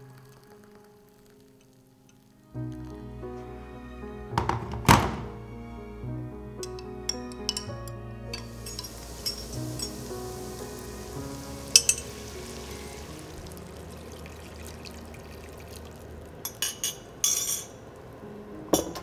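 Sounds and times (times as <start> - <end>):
broth pouring into pan: 0.0 - 3.2, 8.3 - 18.2
oil sizzling in frying pan: 8.3 - 18.2.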